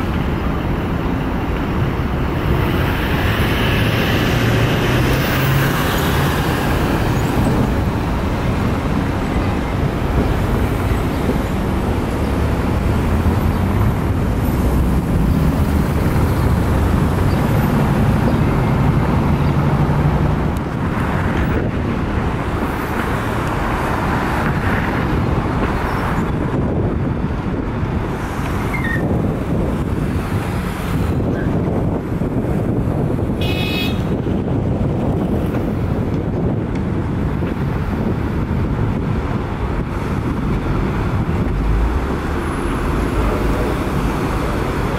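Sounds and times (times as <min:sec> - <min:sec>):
heavy vehicle engine drone: 0:00.0 - 0:33.4, 0:34.0 - 0:44.9
expressway traffic noise: 0:00.0 - 0:44.9
high-pitched horn toot: 0:33.4 - 0:34.1.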